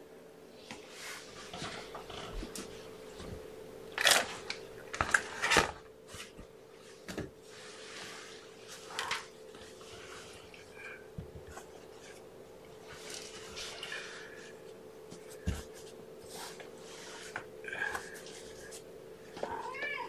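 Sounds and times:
steady low hum: 0.0s - 20.0s
rustling and handling noises: 0.6s - 20.0s.

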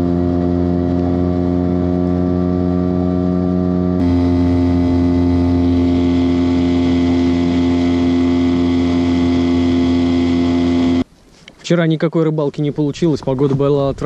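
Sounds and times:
small outboard motor running: 0.0s - 11.1s.

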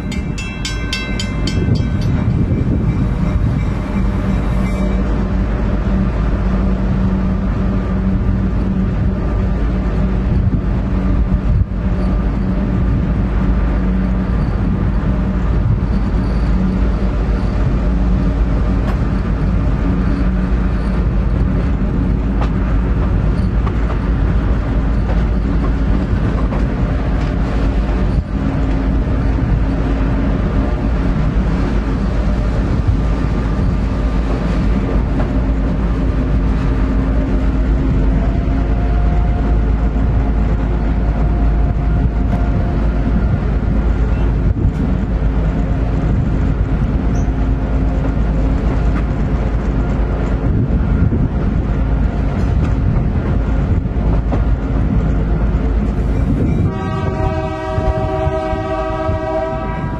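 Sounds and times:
locomotive engine drone: 0.0s - 59.9s.

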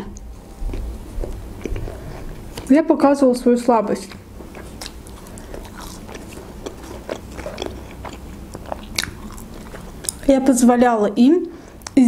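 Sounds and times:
person chewing: 0.1s - 2.7s, 4.1s - 10.3s.

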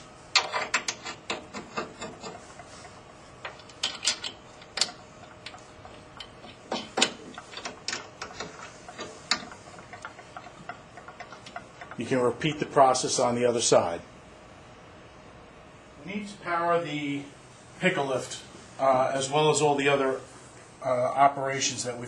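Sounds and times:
metal clicks and taps: 3.4s - 12.0s.

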